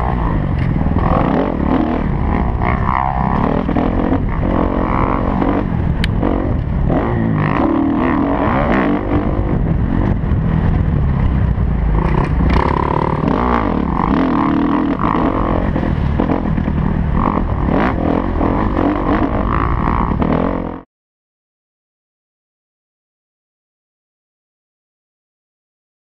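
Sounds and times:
motorbike engine revving: 0.0s - 20.8s.

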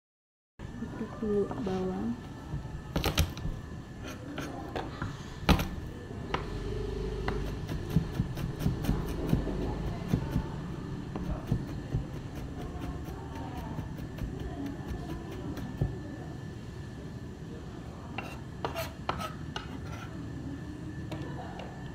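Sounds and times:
knife chopping on cutting board: 7.2s - 10.4s, 11.2s - 14.5s.

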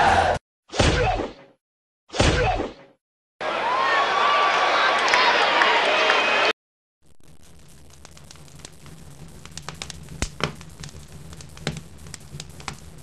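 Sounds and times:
fire crackling and popping: 7.0s - 13.0s.

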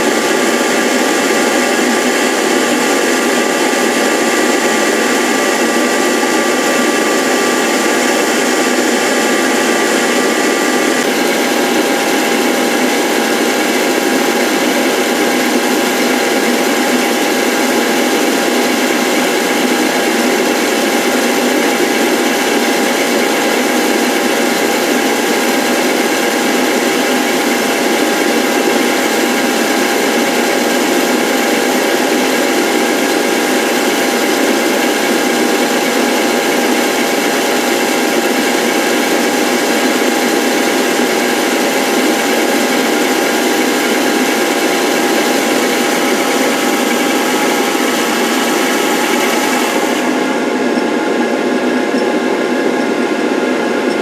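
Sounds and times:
lathe motor whirring: 0.0s - 54.0s.

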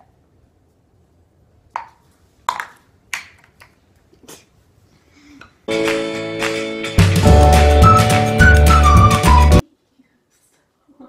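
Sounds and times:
background music: 5.7s - 9.6s.

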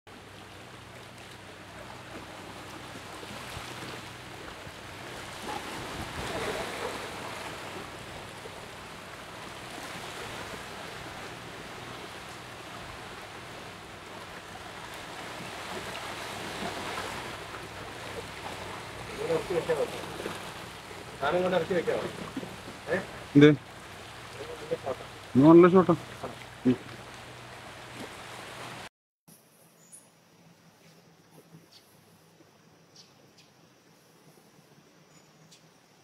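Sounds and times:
steady rushing ambient noise: 4.0s - 26.6s.

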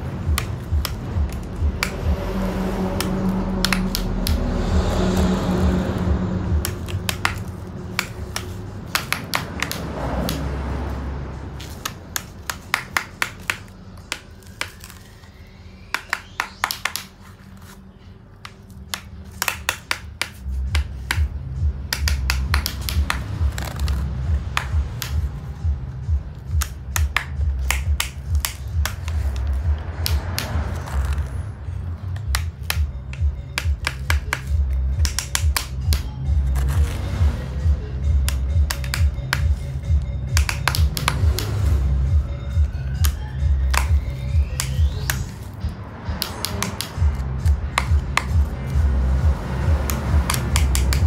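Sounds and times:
plastic toy excavator clicking: 49.9s - 51.0s.

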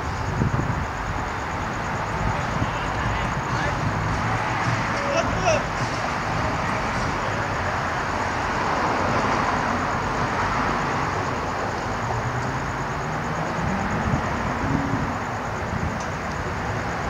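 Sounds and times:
road traffic noise: 0.0s - 17.0s
vehicle engine accelerating: 11.9s - 16.0s.

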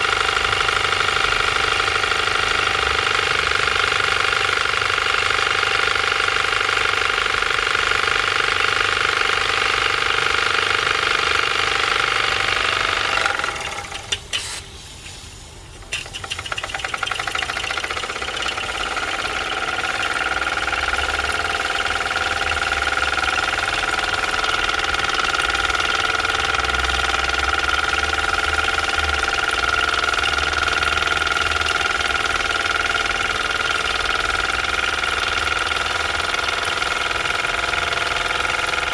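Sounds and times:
toy steam engine chuffing: 0.0s - 14.7s, 15.8s - 38.9s.

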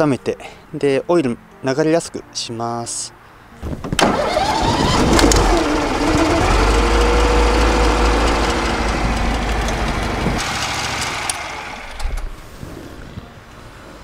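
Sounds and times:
mower engine running: 4.0s - 12.1s.

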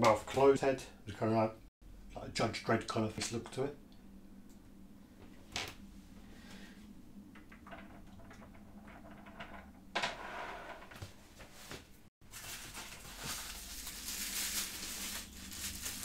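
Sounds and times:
packaging rustling: 12.2s - 16.0s.

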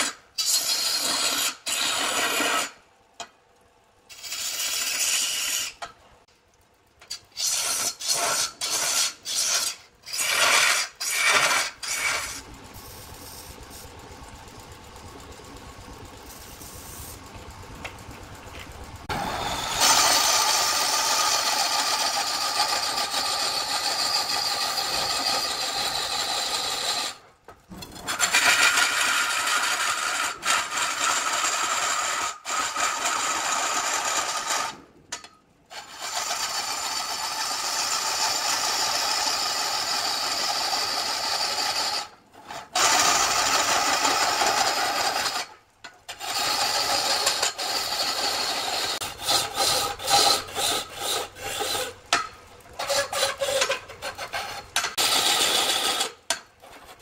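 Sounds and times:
lathe tool rasping on wood: 7.3s - 13.6s, 19.0s - 27.2s, 46.2s - 52.2s, 52.8s - 57.0s
lathe motor hum: 10.1s - 27.1s.

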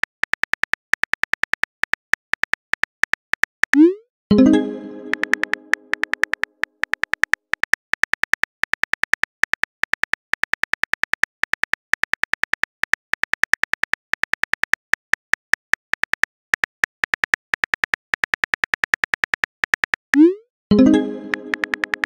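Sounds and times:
keyboard key clicks: 5.0s - 14.8s, 21.2s - 22.0s.

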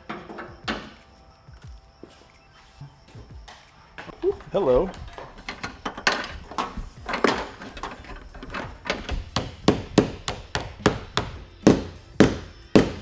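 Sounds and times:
hammer tapping: 7.8s - 13.0s.

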